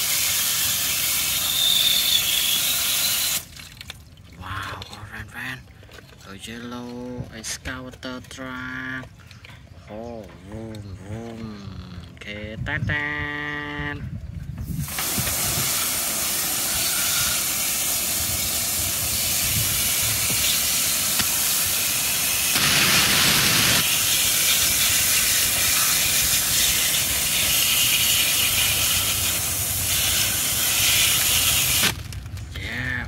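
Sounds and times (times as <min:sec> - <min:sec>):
hose spray nozzle hissing: 0:00.0 - 0:03.5, 0:14.8 - 0:32.0
water spray washing plastic: 0:00.0 - 0:04.0, 0:14.6 - 0:32.4.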